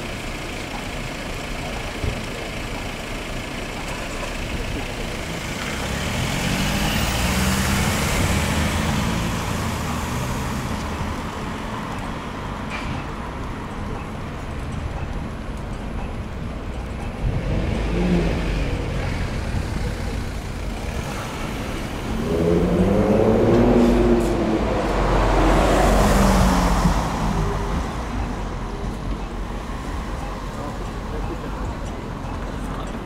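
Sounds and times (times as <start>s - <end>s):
traffic rumble of engines and tyres: 0.0s - 33.0s
vehicle passing close by: 17.3s - 28.0s.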